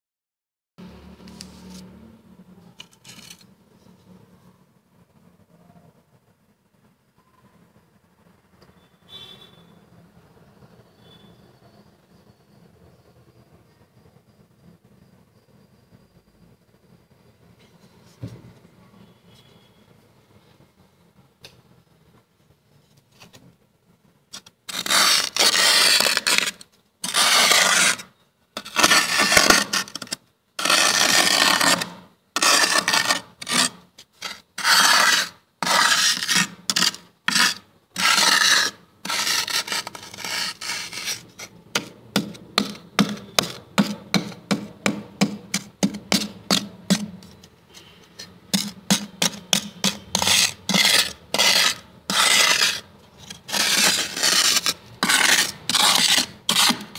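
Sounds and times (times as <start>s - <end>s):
fingers scraping frost: 24.4s - 44.6s, 45.5s - 56.9s.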